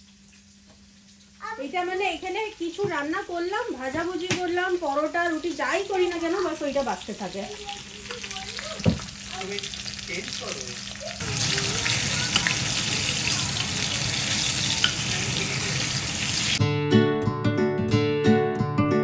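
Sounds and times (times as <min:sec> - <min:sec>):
fish sizzling in a frying pan: 0:00.0 - 0:16.6
spatula turning fish: 0:09.7 - 0:16.6
guitar music: 0:11.2 - 0:19.0.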